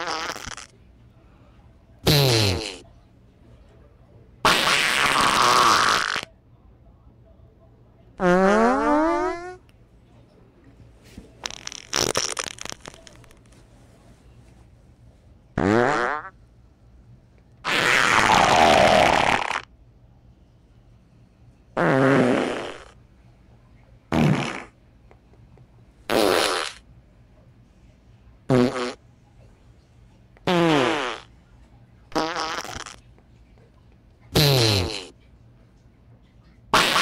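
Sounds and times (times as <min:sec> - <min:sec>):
farts: 0:00.0 - 0:00.7, 0:02.0 - 0:02.8, 0:04.4 - 0:06.3, 0:08.2 - 0:09.6, 0:11.4 - 0:13.5, 0:15.6 - 0:16.4, 0:17.6 - 0:19.7, 0:21.8 - 0:23.0, 0:24.1 - 0:24.8, 0:26.1 - 0:26.8, 0:28.5 - 0:29.0, 0:30.4 - 0:31.3, 0:32.1 - 0:33.0, 0:34.3 - 0:35.2, 0:36.7 - 0:37.0.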